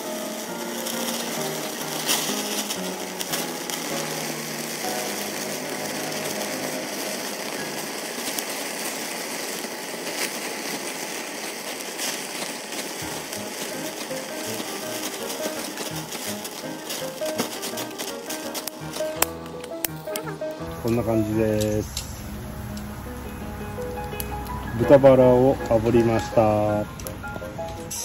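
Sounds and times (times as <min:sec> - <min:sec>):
fat sizzling on a grill: 0:00.0 - 0:28.0
faint background music: 0:13.0 - 0:28.0.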